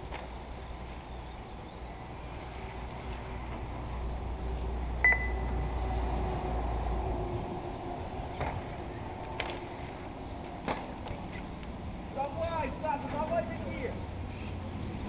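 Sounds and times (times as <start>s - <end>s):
short electronic beep: 5.0s - 5.5s.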